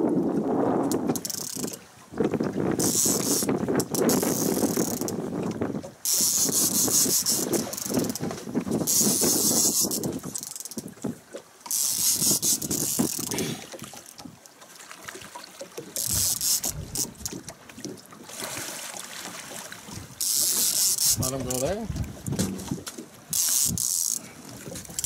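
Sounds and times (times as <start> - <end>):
fishing reel clicking: 0.9 - 1.8, 2.8 - 5.2, 6.0 - 8.2, 8.9 - 10.9, 11.6 - 13.4, 16.0 - 17.4, 20.2 - 21.8, 23.3 - 24.3.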